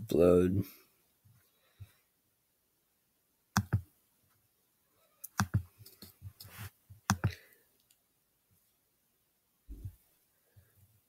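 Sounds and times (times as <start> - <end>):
computer mouse clicks: 3.6 - 3.8, 5.2 - 6.5, 7.1 - 8.0.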